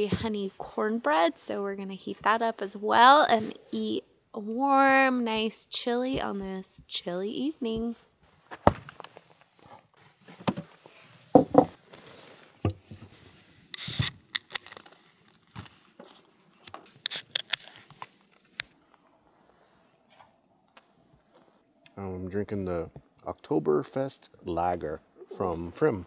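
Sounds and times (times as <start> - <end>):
loud hiss: 13.7 - 14.2, 16.9 - 17.8.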